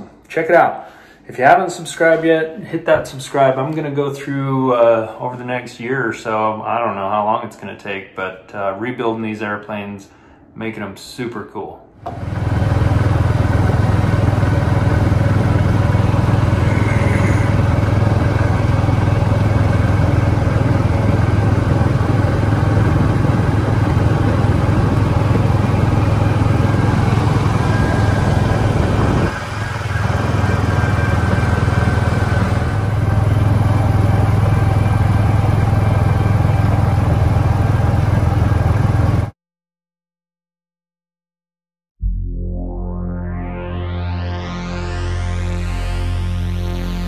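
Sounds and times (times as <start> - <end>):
utility vehicle engine droning: 12.1 - 39.0, 42.0 - 47.0.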